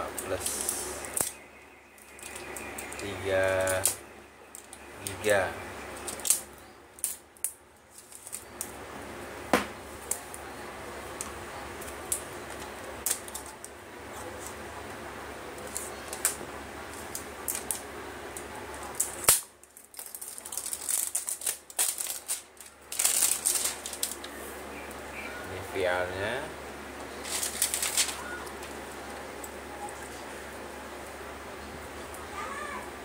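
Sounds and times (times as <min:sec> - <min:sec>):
plastic wrap crinkling: 0:15.6 - 0:24.5, 0:27.1 - 0:30.2.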